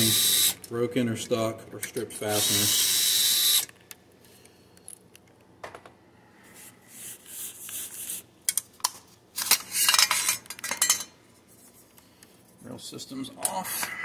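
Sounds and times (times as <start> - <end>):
metal parts clinking and scraping: 9.4 - 11.1.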